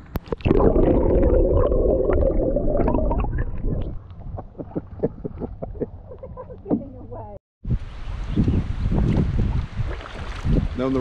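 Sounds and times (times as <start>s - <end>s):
muffled underwater gurgling: 0.3s - 5.7s.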